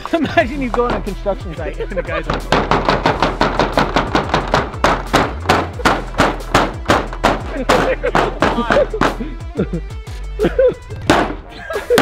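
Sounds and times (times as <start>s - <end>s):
hammer striking board wall: 2.3s - 9.2s, 11.0s - 12.0s.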